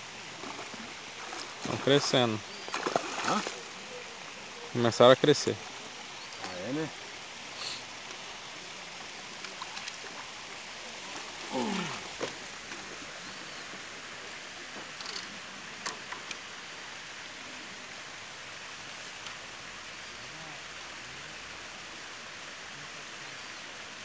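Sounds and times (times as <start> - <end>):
steady hiss: 3.8 - 9.6
short vocal sound: 11.5 - 12.1.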